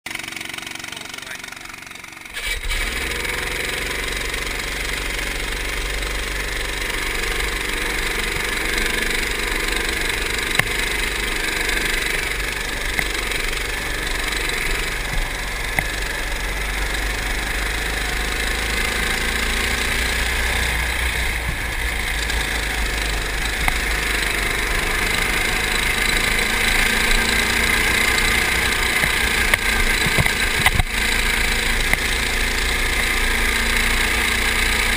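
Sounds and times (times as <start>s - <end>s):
go-kart engine running: 0.1s - 34.9s.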